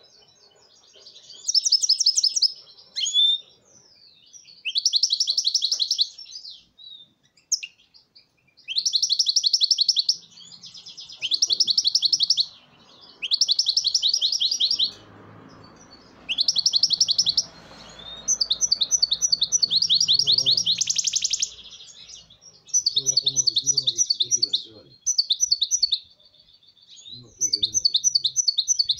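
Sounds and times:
bird singing trilled notes: 0.0 - 28.9.

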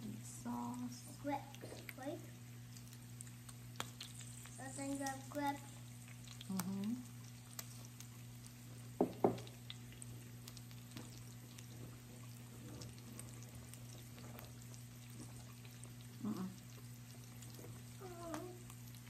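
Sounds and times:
low steady hum: 0.0 - 19.0
meat sizzling on griddle: 8.8 - 9.5.

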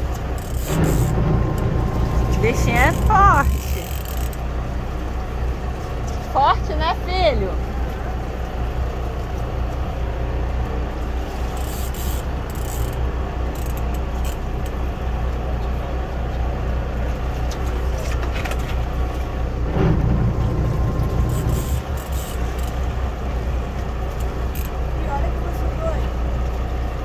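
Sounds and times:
water splashing: 0.0 - 6.0
boat engine idling: 0.0 - 27.0.

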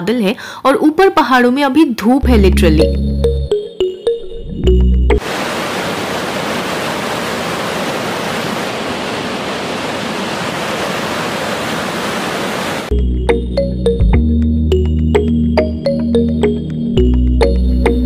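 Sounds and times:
background music: 2.2 - 5.2, 12.9 - 18.0
river rushing over boulders: 5.2 - 12.9.

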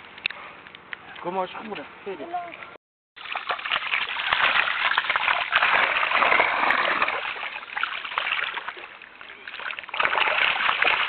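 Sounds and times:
fish splashing in water: 3.2 - 11.0.

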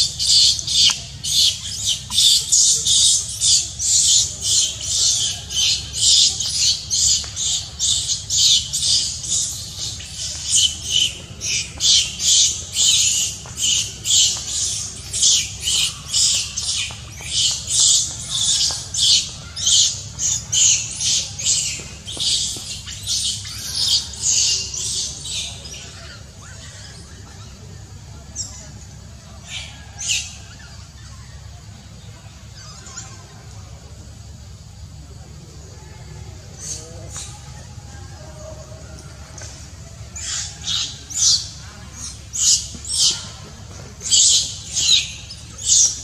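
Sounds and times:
baby monkey screaming: 0.0 - 27.5, 32.5 - 33.4, 40.1 - 43.4.

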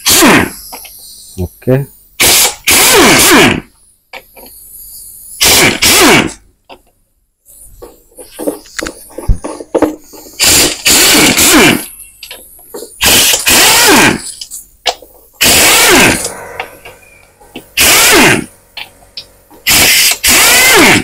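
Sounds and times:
impact wrench hammering: 15.4 - 21.0.

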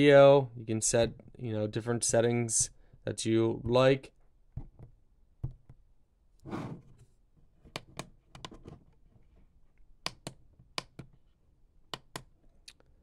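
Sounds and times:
keypad buttons clicking: 10.0 - 11.1.

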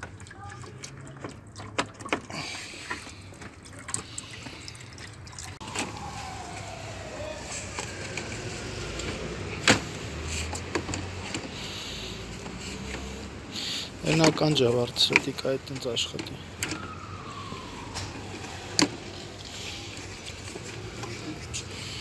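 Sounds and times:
clicks and knocks of car parts: 10.5 - 11.6.

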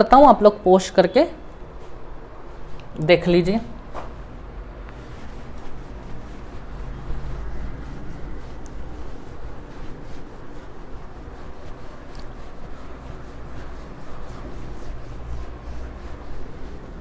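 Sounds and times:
steady low hum: 1.4 - 17.0
duster rubbing on whiteboard: 3.8 - 17.0.

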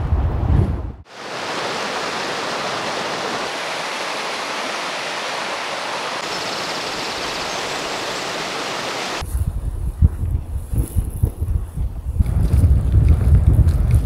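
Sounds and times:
water rushing over rocks: 1.1 - 9.2.

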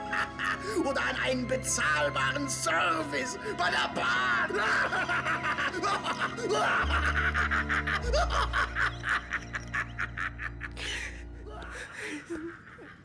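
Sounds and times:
man laughing villainously: 0.0 - 1.1, 4.3 - 13.0
dramatic film music: 0.0 - 12.4.

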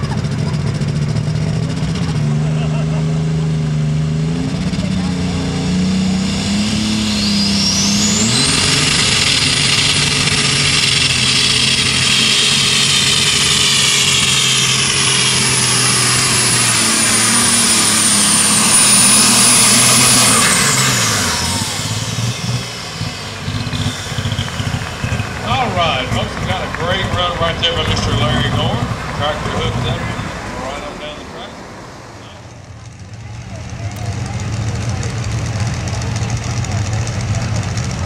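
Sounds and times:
high turbocharger whine: 0.0 - 38.0
tractor engine at full throttle: 0.0 - 38.0.

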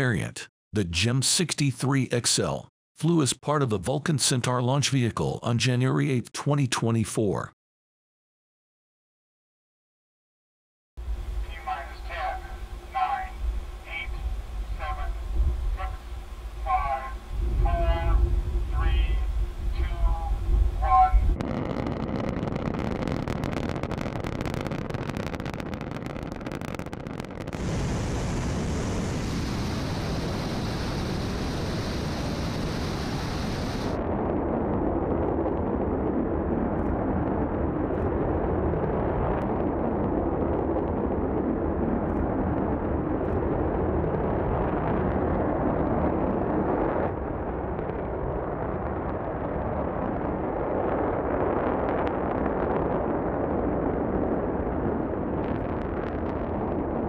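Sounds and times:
rocket exhaust roar: 11.0 - 57.0.

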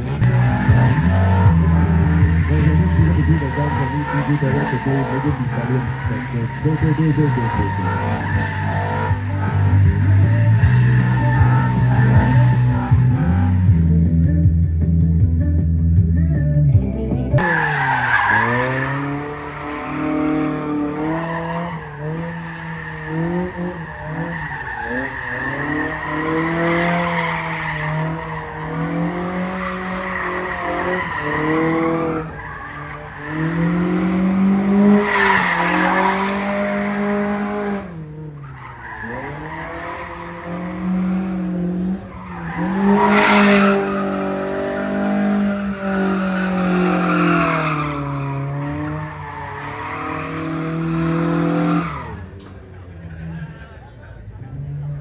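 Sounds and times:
car engine revving: 0.0 - 16.4, 17.4 - 55.0
tyres squealing: 0.1 - 13.8, 42.1 - 52.2.

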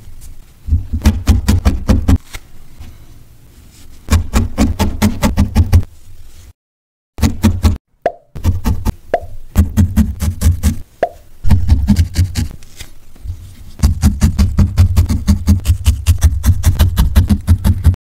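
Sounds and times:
felting needle stabbing foam: 11.5 - 12.6, 13.8 - 18.0.

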